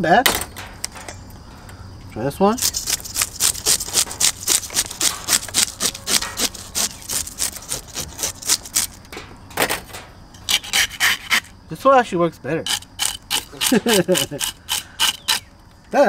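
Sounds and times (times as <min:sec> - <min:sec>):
scaler scraping fish scales: 0:02.6 - 0:09.1, 0:10.4 - 0:11.5, 0:12.6 - 0:15.5.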